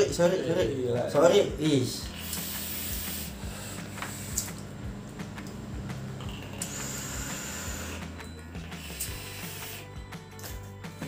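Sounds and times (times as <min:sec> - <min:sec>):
soft hiss of vaping: 0:02.0 - 0:04.7, 0:06.4 - 0:09.9.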